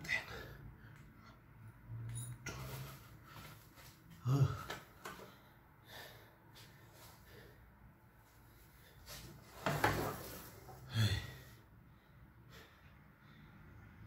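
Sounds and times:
man breathing heavily: 0:00.0 - 0:01.7, 0:02.4 - 0:09.4, 0:10.5 - 0:14.0
man grunting: 0:04.2 - 0:04.8, 0:10.9 - 0:11.5.

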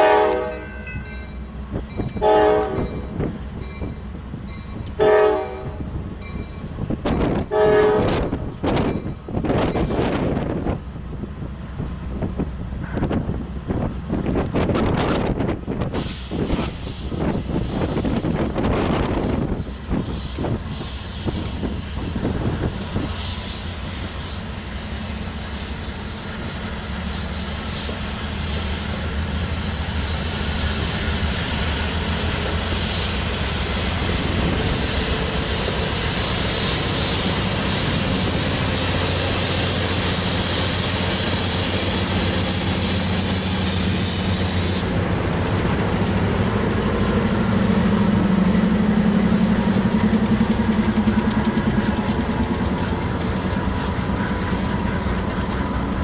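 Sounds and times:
diesel locomotive engine drone: 0:00.0 - 0:56.0
wind buffeting microphone: 0:05.7 - 0:24.0, 0:32.4 - 0:40.8
high hiss: 0:19.7 - 0:50.3.

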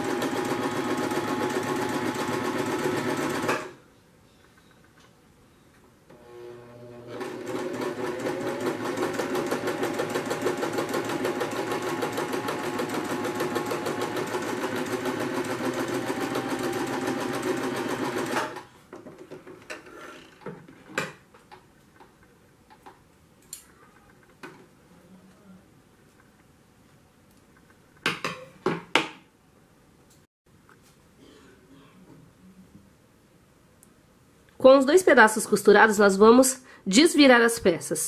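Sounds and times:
sewing machine stitching: 0:00.0 - 0:03.8, 0:06.1 - 0:18.6.

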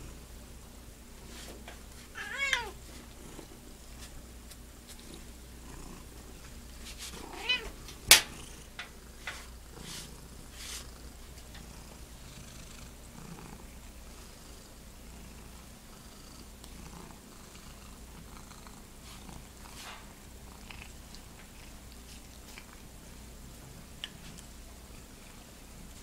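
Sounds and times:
cat meowing: 0:02.2 - 0:02.8, 0:07.2 - 0:07.8
cat purring: 0:02.5 - 0:03.8, 0:04.9 - 0:22.8.

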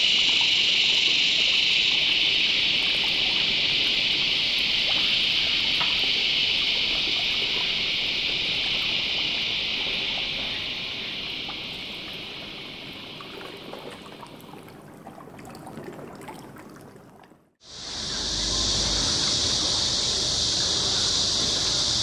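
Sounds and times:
high-pitched insect chorus: 0:00.0 - 0:14.8, 0:17.6 - 0:22.0
small ticks: 0:00.1 - 0:12.6
faint garden ambience: 0:17.6 - 0:22.0.

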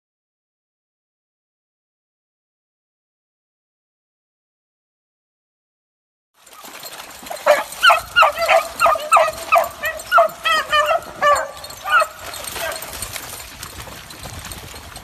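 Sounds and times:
dogs baying in high yelps: 0:06.6 - 0:13.4.

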